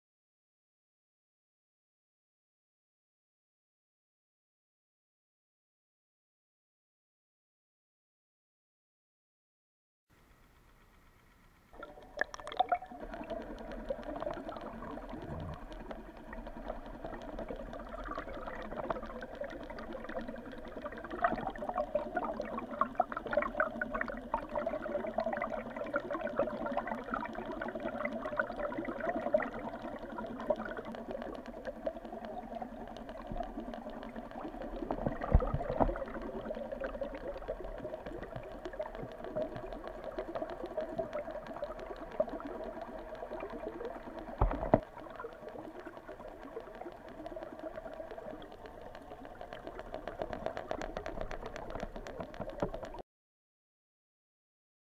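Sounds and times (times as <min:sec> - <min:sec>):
water rushing underwater: 0:11.8 - 0:53.0.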